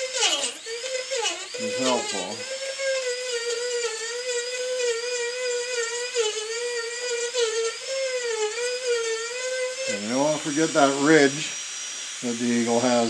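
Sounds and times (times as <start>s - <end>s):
rotary tool whining: 0.0s - 13.0s.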